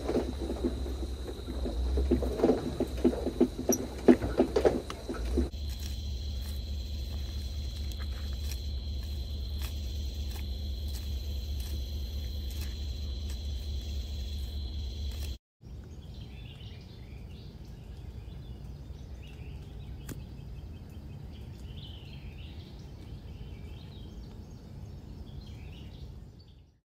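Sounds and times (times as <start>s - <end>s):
high insect drone: 0.0s - 15.4s
low steady rumble: 0.0s - 26.7s.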